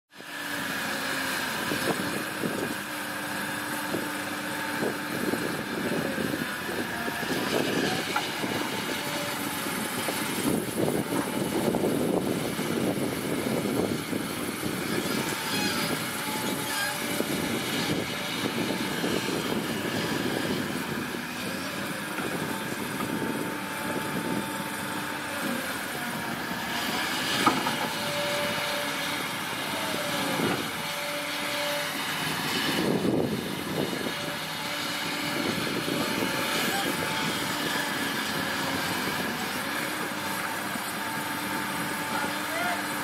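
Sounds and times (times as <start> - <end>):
excavator diesel engine running: 0.2 - 43.0.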